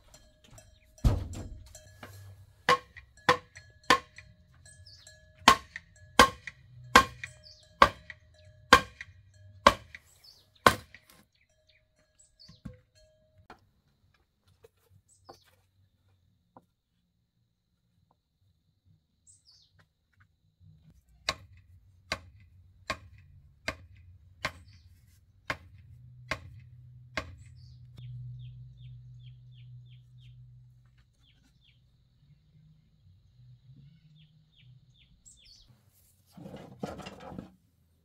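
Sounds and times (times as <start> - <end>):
sharp knocks: 0.5 - 2.1, 2.7 - 4.2, 5.5 - 10.0
small birds chirping: 4.5 - 6.2, 7.0 - 12.9, 19.1 - 21.3, 24.4 - 25.1, 27.2 - 35.8.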